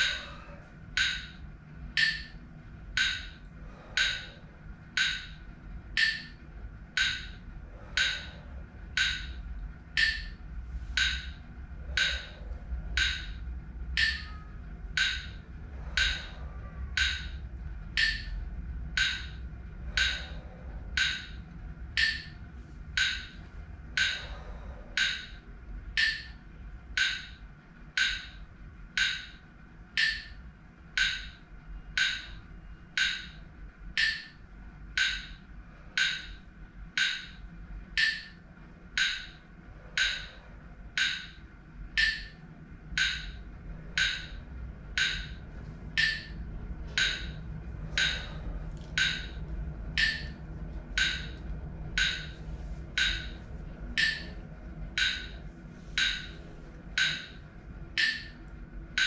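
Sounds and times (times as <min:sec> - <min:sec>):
metronome clicking: 0:00.9 - 0:04.4, 0:05.0 - 0:10.4, 0:11.0 - 0:22.4, 0:23.0 - 0:24.4, 0:25.0 - 0:28.4, 0:29.0 - 0:30.4, 0:31.0 - 0:31.4, 0:32.0 - 0:32.4, 0:33.0 - 0:34.4, 0:35.0 - 0:35.4, 0:36.0 - 0:36.4, 0:37.0 - 0:38.4, 0:39.0 - 0:39.4, 0:40.0 - 0:43.4, 0:44.0 - 0:44.4, 0:45.0 - 0:49.4, 0:50.0 - 0:50.4, 0:51.0 - 0:51.4, 0:52.0 - 0:52.4, 0:53.0 - 0:54.4, 0:55.0 - 0:56.4, 0:57.0 - 0:57.4, 0:58.0 - 0:59.0.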